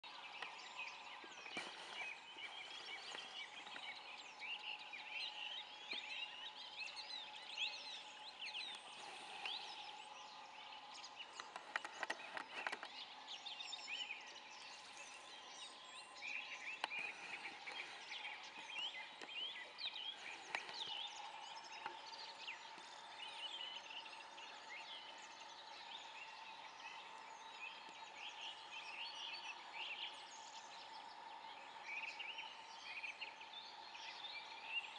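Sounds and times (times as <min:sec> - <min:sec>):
birds chirping and singing: 0:00.0 - 0:34.9
drone of distant bird calls: 0:00.0 - 0:34.9.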